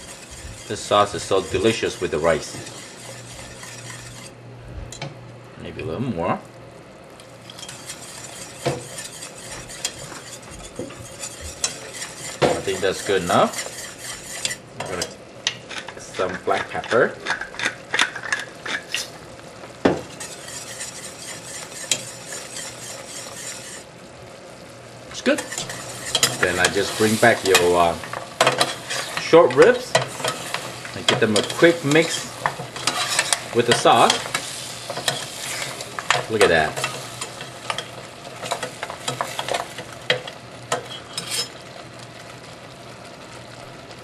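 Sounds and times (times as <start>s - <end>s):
spoon clinking and scraping pot: 0.0s - 4.3s, 7.5s - 19.1s, 20.1s - 23.8s, 25.4s - 41.6s
whisk stirring bubbling sauce: 0.0s - 4.3s, 7.4s - 14.6s, 15.6s - 19.1s, 20.0s - 23.9s, 25.2s - 40.9s
sizzling hiss: 0.0s - 5.0s, 7.1s - 17.1s, 17.9s - 44.0s.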